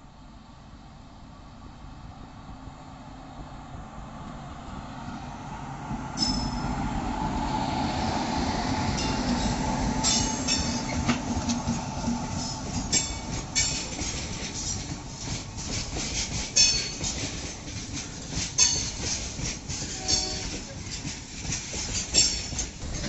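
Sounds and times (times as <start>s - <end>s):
train rumble: 0.0s - 23.0s
wheel clacks over rails: 10.0s - 23.0s
high-pitched wheel squeals: 19.9s - 20.6s.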